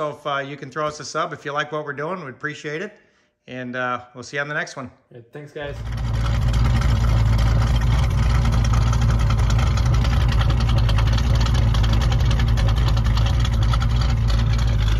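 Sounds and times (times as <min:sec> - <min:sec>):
car engine idling: 0:05.7 - 0:14.9.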